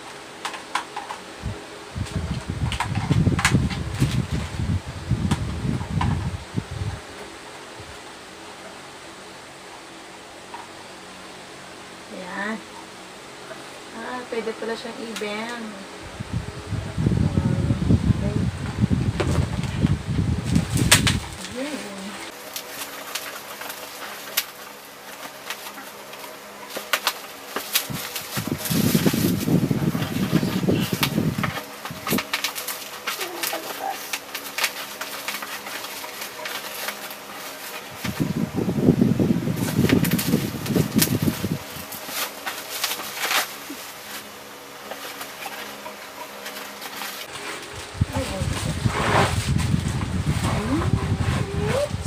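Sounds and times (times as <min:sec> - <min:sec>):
low fluttering sound: 0:16.0 - 0:24.2, 0:26.6 - 0:43.9, 0:45.0 - 0:52.0
plastic wrapping crinkling: 0:19.2 - 0:48.5.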